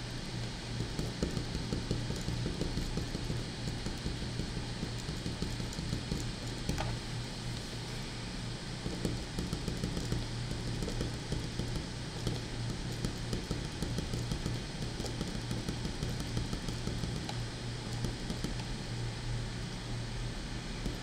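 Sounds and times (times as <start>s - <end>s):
steady low hum: 0.0s - 21.0s
pen scratching on paper: 8.8s - 18.8s.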